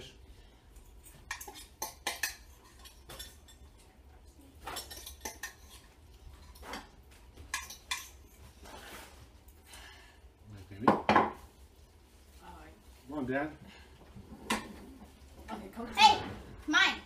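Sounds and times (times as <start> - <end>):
utensils clinking against bowls: 1.0 - 3.9, 4.6 - 8.6.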